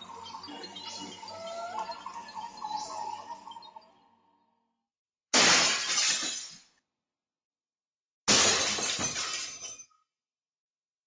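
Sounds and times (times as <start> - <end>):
glass shattering: 5.4 - 6.7, 8.3 - 9.9.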